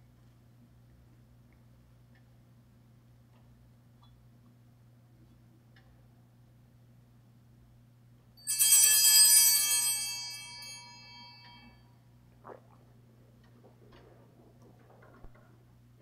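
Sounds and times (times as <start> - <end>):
altar bells ringing: 8.4 - 11.9.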